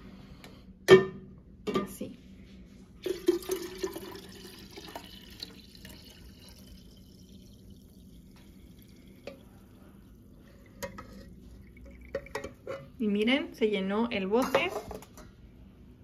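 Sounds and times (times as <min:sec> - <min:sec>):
tea pouring into glass jar: 0:03.0 - 0:12.5.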